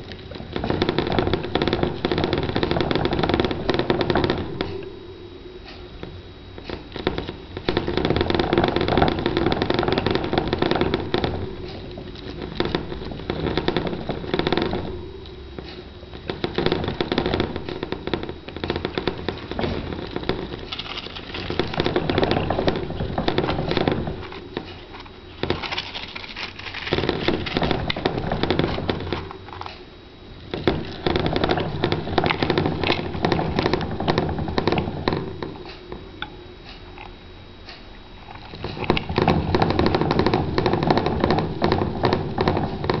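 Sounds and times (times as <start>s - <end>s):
plastic hamster wheel rattling: 20.6s - 28.0s.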